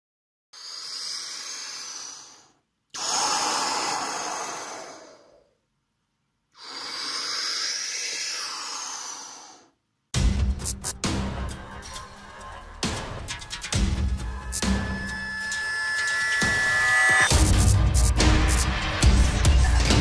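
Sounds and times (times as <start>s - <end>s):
person breathing slowly: 0.6s - 5.6s, 6.5s - 9.8s
music with heavy beat: 10.2s - 20.0s.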